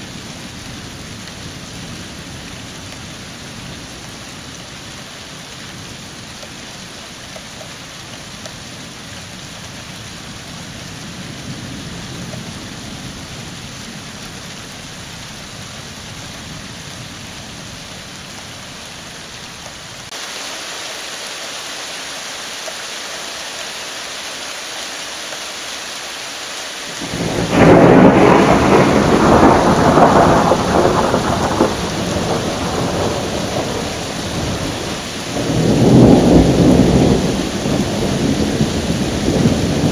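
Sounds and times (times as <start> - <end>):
rain hiss: 0.0 - 39.9
distant thunder rumble: 27.0 - 39.9
loud thunderclap: 27.0 - 39.9.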